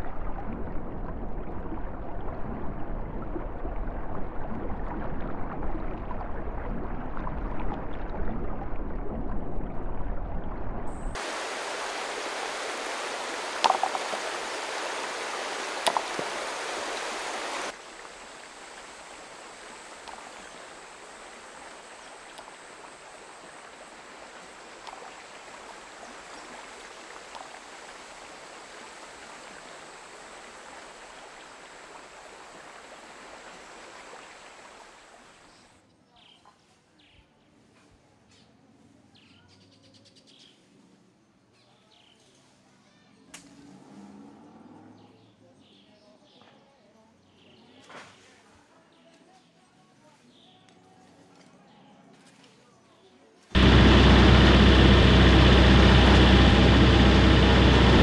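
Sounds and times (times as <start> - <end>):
stream water running: 0.0 - 35.7, 53.6 - 58.0
faint steady hiss: 11.0 - 35.7
thin high whine: 53.6 - 58.0.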